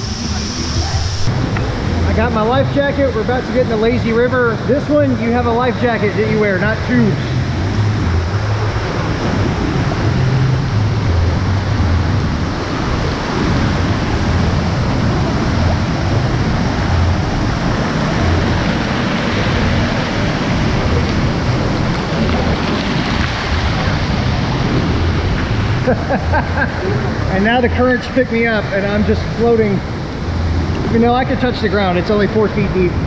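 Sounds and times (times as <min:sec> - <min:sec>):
low rumble: 0:00.0 - 0:33.0
water rushing: 0:00.0 - 0:33.0.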